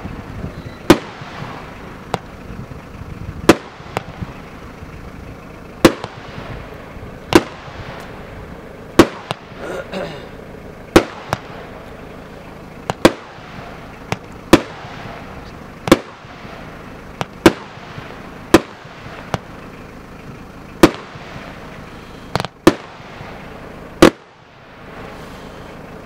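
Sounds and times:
fireworks bangs: 0:00.0 - 0:19.8, 0:20.7 - 0:25.9.

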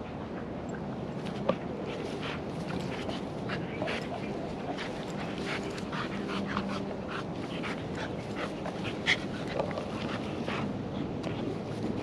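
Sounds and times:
dogs play-fighting: 0:00.8 - 0:12.0.

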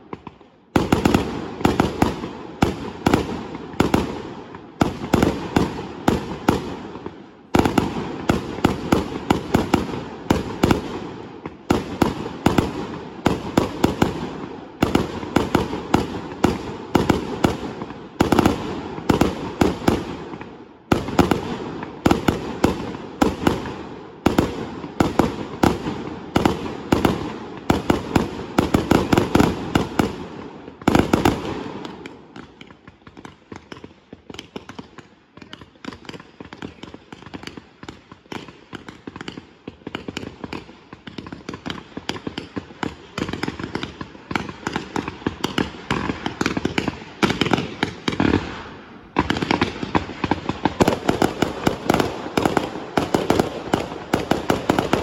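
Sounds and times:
fireworks bangs and cracks: 0:00.0 - 0:55.0.

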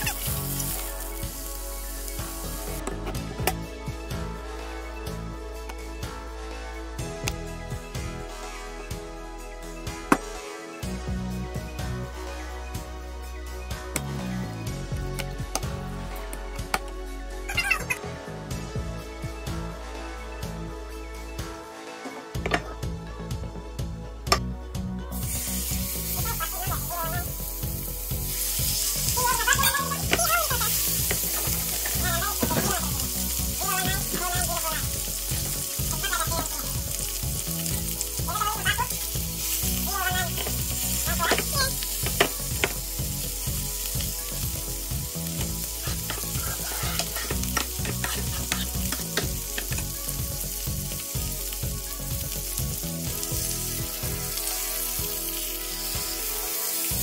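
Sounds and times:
steaks sizzling in a frying pan: 0:00.0 - 0:02.8, 0:25.1 - 0:57.0
oil crackling and spitting: 0:45.4 - 0:52.6.

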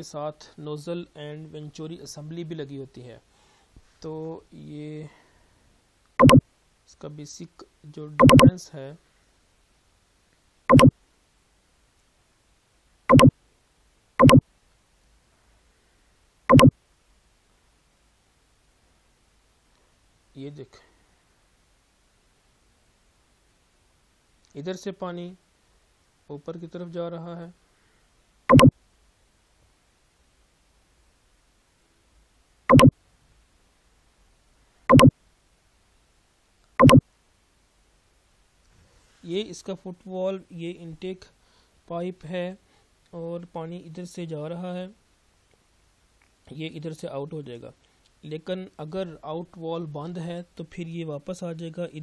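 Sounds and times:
short loud soundtrack blips: 0:06.2 - 0:06.4, 0:08.2 - 0:08.5, 0:10.7 - 0:10.9, 0:13.1 - 0:13.3, 0:14.2 - 0:14.4, 0:16.5 - 0:16.7, 0:28.5 - 0:28.7, 0:32.7 - 0:32.9, 0:34.9 - 0:35.1, 0:36.8 - 0:37.0.

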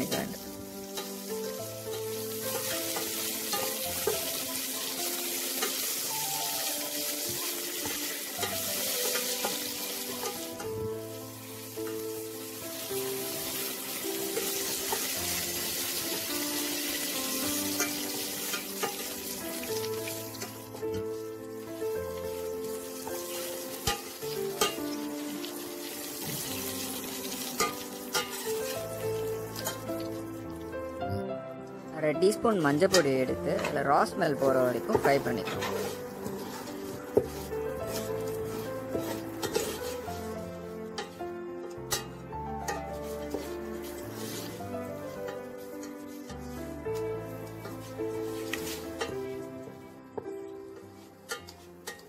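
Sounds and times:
metal spatula scraping pan: 0:00.0 - 0:04.9, 0:17.7 - 0:19.3, 0:23.4 - 0:24.9, 0:27.5 - 0:30.0, 0:34.8 - 0:41.2
oil sizzling in a pan: 0:00.0 - 0:31.0, 0:31.7 - 0:52.0
soft background music: 0:00.0 - 0:52.0.

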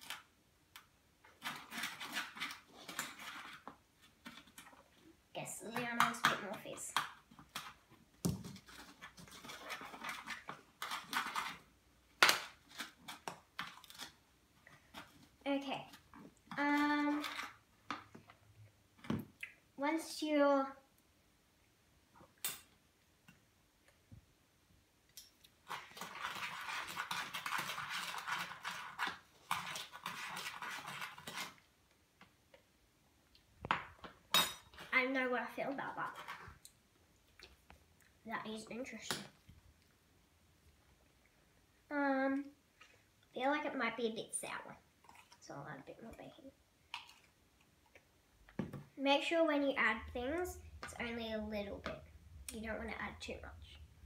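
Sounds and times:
metal spoons scraping plastic bowls: 0:01.3 - 0:04.8, 0:08.5 - 0:11.7, 0:25.6 - 0:31.6
spoon scraping powder in plastic bowl: 0:25.7 - 0:31.6.

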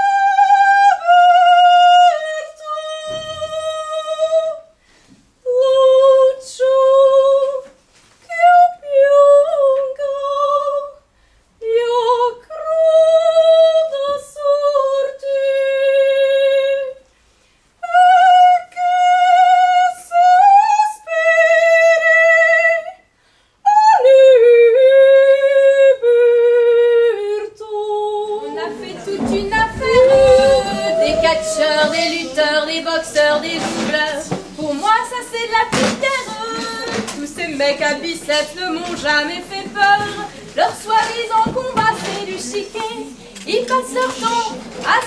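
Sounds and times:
high solo voice singing: 0:23.9 - 0:45.0.

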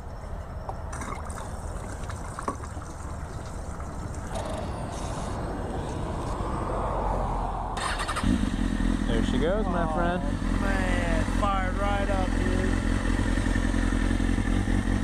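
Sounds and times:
petrol trickling into fuel tank: 0:00.7 - 0:05.1.

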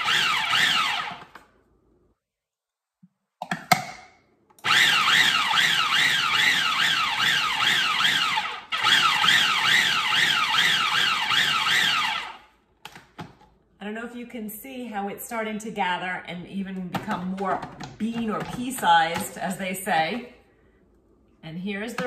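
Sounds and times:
food processor motor whining: 0:00.0 - 0:01.4, 0:04.6 - 0:12.4.

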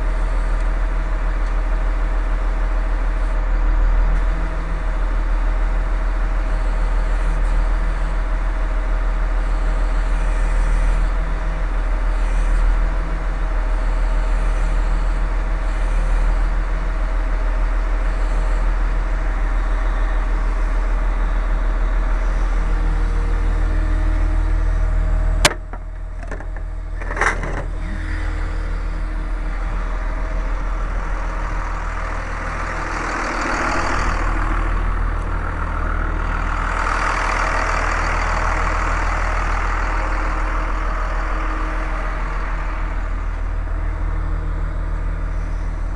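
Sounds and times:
large engine idling: 0:00.0 - 0:45.9
sharp click: 0:25.4 - 0:27.7.

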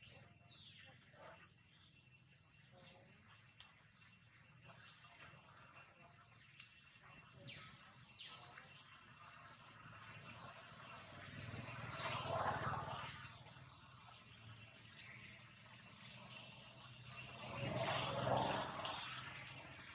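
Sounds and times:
broad rushing noise with low hum: 0:09.0 - 0:19.9.

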